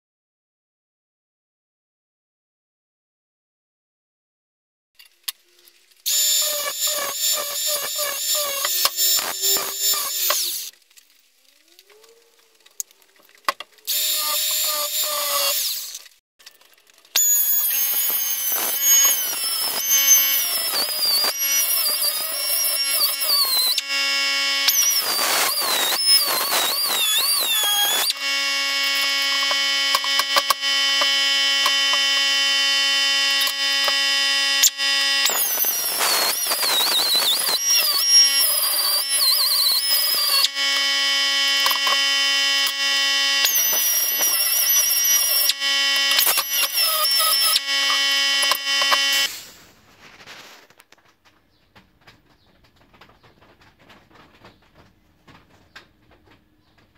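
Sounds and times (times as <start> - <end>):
air tool whining: 6.0 - 10.7, 13.5 - 16.1, 17.1 - 49.8.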